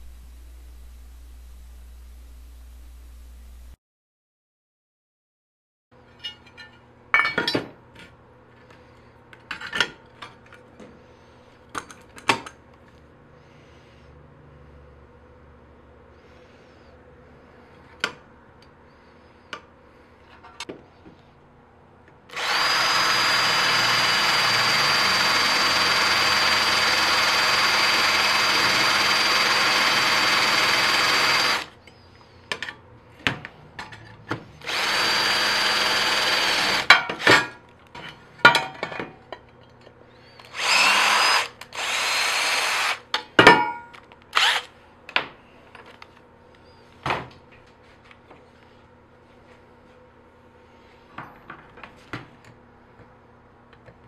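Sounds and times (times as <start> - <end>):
cordless drill whining: 22.3 - 31.7, 34.6 - 36.9, 40.2 - 43.0, 44.3 - 44.7.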